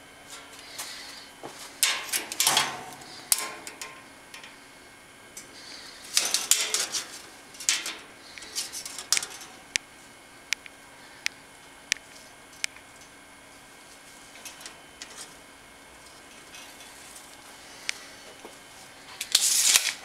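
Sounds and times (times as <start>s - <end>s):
tape measure and wire cage rattling: 1.8s - 4.5s, 6.1s - 9.6s, 19.2s - 20.0s
sharp clicks: 10.5s - 12.0s.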